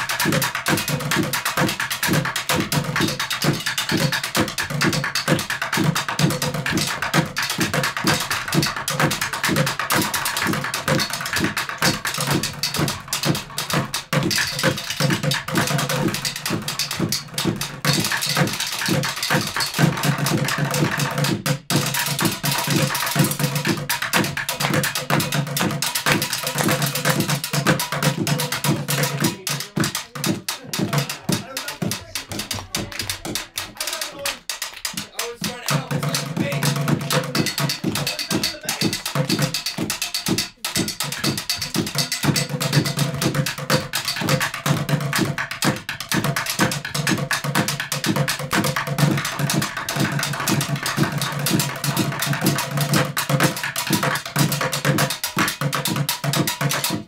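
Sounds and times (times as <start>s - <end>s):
drumsticks on buckets and metal: 27.6s - 44.5s.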